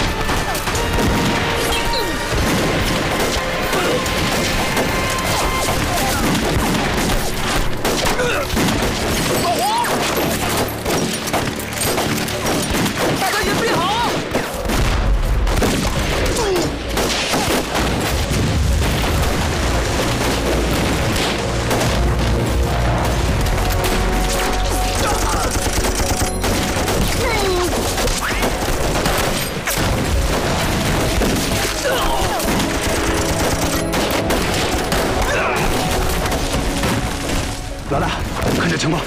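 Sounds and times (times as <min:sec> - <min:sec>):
people shouting: 0:00.0 - 0:02.5, 0:03.4 - 0:06.7, 0:08.0 - 0:10.6, 0:24.5 - 0:26.2, 0:31.1 - 0:36.5
continuous gunfire: 0:00.0 - 0:39.0
film music with sustained tones: 0:00.0 - 0:39.0.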